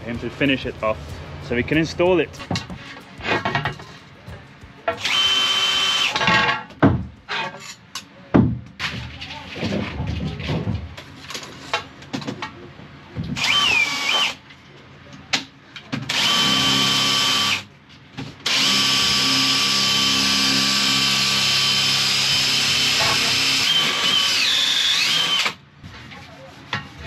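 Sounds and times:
electric drill running: 5.0s - 6.2s, 13.4s - 14.4s, 16.1s - 17.6s, 18.4s - 25.6s.

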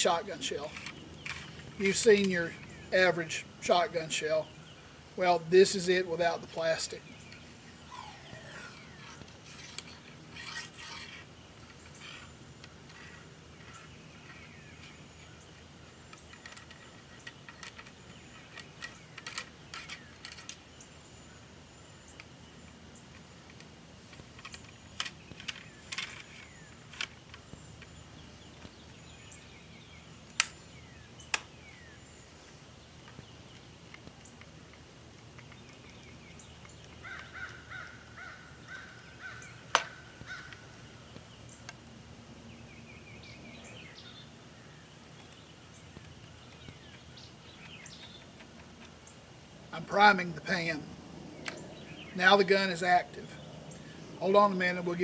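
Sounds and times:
birds chirping: 0.0s - 55.0s
gun clicks and taps: 33.0s - 36.0s, 39.7s - 40.0s.

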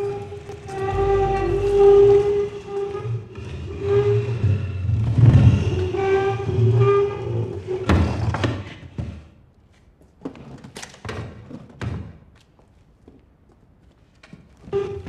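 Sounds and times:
chair legs scraping floor: 0.0s - 9.2s.

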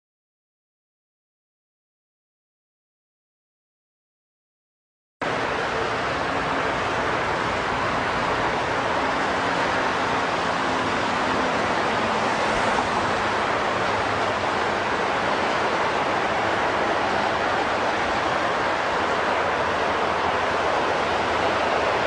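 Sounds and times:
freeway traffic roar: 5.2s - 22.0s.

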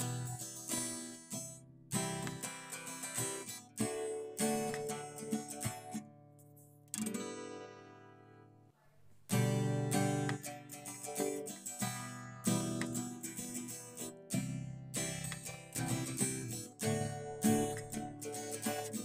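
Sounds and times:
acoustic guitar chords strummed: 0.0s - 19.0s.

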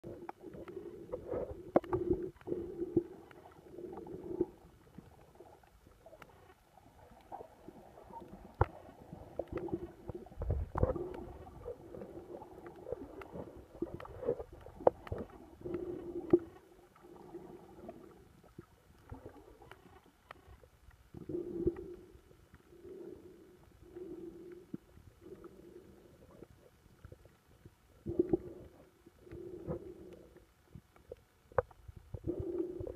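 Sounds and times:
underwater gurgling wash: 0.0s - 22.1s
underwater hum: 0.0s - 32.9s
sharp clicks and pops: 0.1s - 3.6s, 4.9s - 7.4s, 8.2s - 11.7s, 12.6s - 16.7s, 18.5s - 21.9s.

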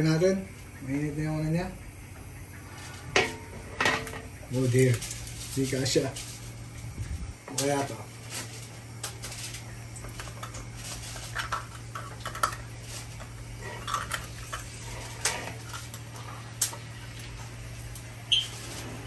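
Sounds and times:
frying oil: 5.5s - 19.0s.

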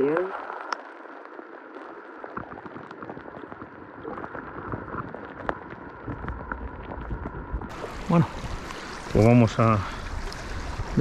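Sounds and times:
muffled underwater river rushing: 0.0s - 11.0s
small underwater clicks: 0.6s - 7.7s.

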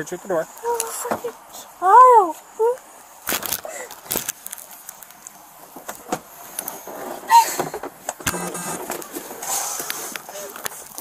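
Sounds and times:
rustling: 3.2s - 11.0s.

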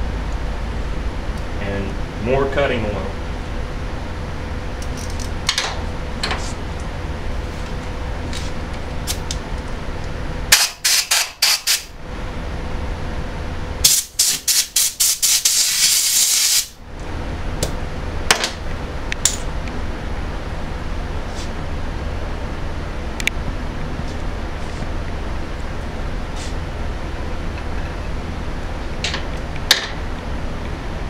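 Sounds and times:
aerosol spray hissing: 14.2s - 16.8s.

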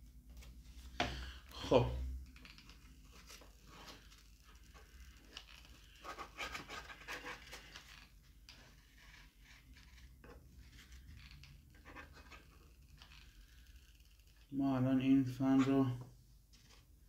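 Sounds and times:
styrofoam scratching and rubbing: 3.0s - 8.1s.

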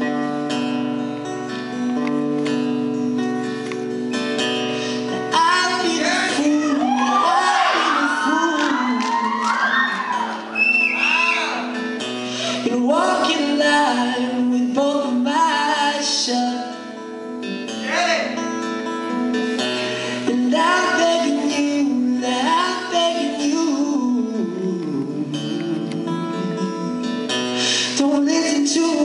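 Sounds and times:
acoustic guitar: 0.0s - 29.0s
man singing into a microphone: 5.2s - 10.5s, 12.4s - 17.0s, 20.2s - 29.0s.

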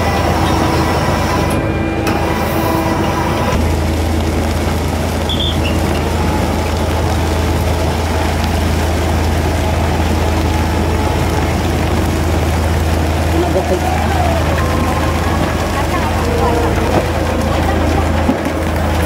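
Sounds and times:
ship machinery droning: 0.0s - 19.0s.

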